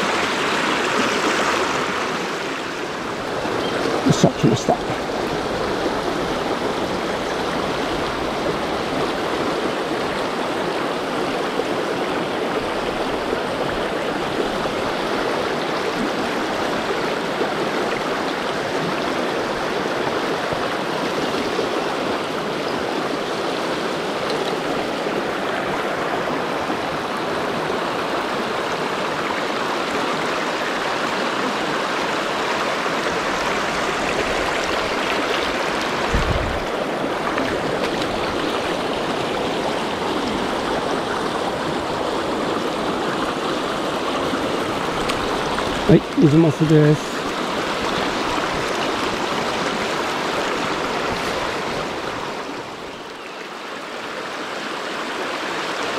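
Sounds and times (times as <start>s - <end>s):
river water rushing over rocks: 0.0s - 55.9s.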